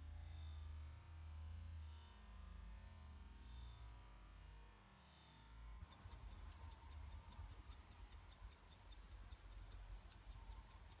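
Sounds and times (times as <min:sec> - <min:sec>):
pocket watch ticking: 0:05.8 - 0:11.0.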